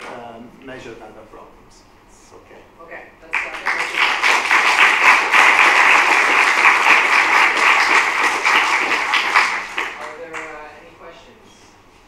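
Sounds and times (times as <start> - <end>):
audience applauding: 3.3 - 10.6.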